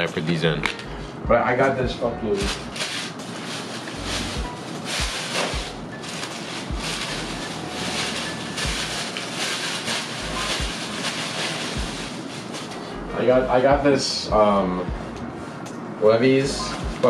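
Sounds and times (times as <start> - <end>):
plastic bag rustling: 2.3 - 13.3.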